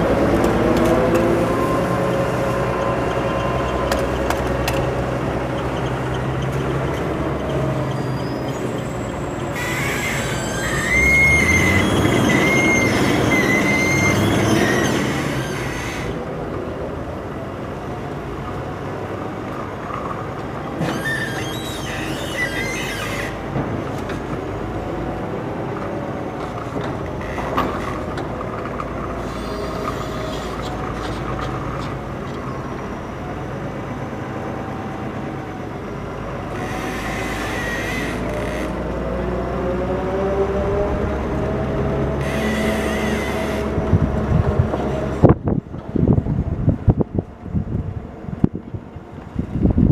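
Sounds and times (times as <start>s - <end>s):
forklift engine running: 0.0s - 49.6s
high wavering squeals: 7.5s - 16.2s, 20.8s - 23.4s, 36.5s - 38.7s, 42.2s - 43.8s.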